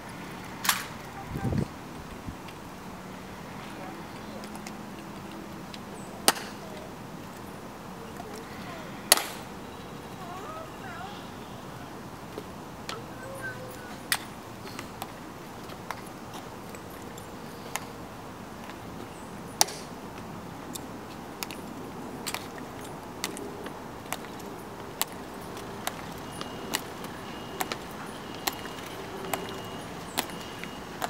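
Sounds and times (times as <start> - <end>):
metal-tapped heels clicking on stone: 19.6 - 31.0.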